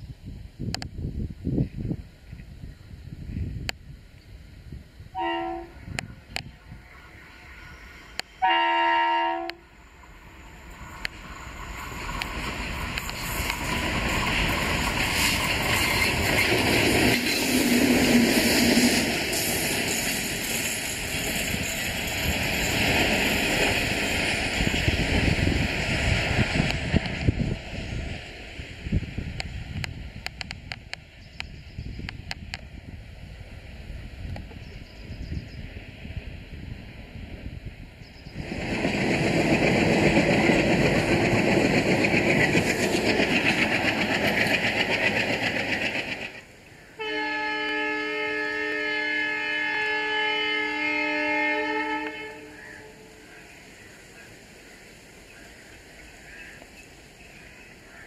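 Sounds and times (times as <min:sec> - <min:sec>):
wind buffeting microphone: 0:00.0 - 0:08.2, 0:10.6 - 0:46.3
diesel locomotives rumbling: 0:00.2 - 0:58.0
locomotive horn chord: 0:05.2 - 0:05.8, 0:08.4 - 0:09.6, 0:47.0 - 0:53.0
wheel and rail clatter: 0:10.6 - 0:28.0, 0:38.3 - 0:46.6.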